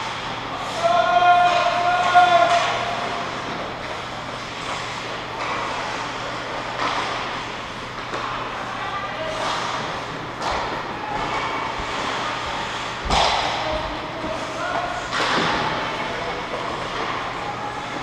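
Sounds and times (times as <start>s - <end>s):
distant players shouting: 0.6s - 3.2s
hockey stick hitting puck: 0.9s - 2.9s, 6.7s - 7.4s, 10.4s - 14.4s, 15.0s - 17.1s.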